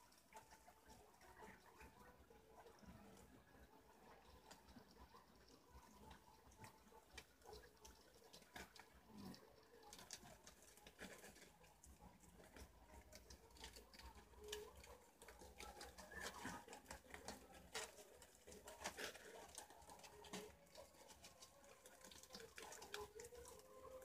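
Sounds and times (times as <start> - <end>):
rustles and clicks among leaves: 7.5 - 24.0.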